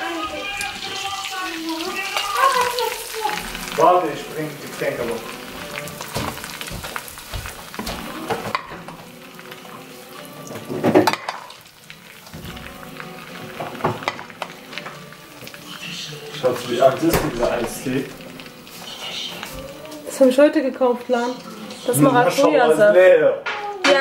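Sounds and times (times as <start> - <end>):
butter sizzling in frying pan: 0.0 - 24.0
spoon stirring in pan: 4.6 - 22.4.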